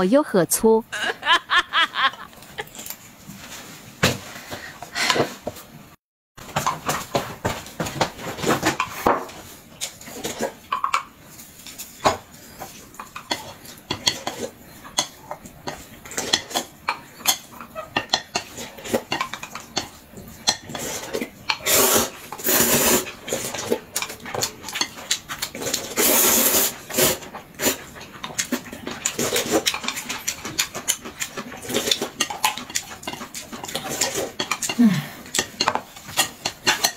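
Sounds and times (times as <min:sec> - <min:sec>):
slurping noodles: 0:20.7 - 0:23.9, 0:25.4 - 0:35.5
chopsticks tapping on plates: 0:29.6 - 0:36.9.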